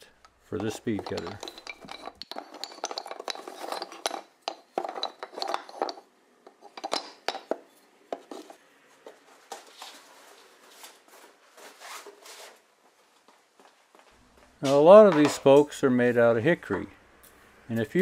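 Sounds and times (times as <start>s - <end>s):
wooden spokes clattering: 0.5s - 8.6s.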